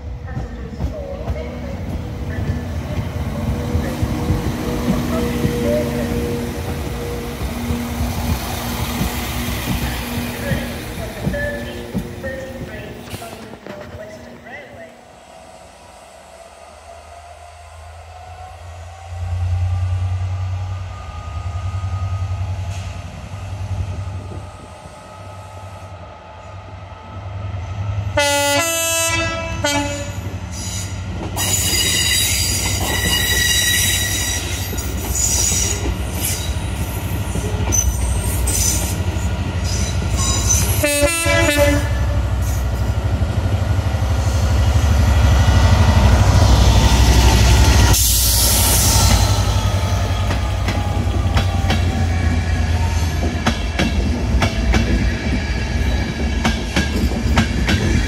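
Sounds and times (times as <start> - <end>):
low rumble of train: 0.0 - 58.0
train horn: 28.2 - 30.3, 40.2 - 42.2.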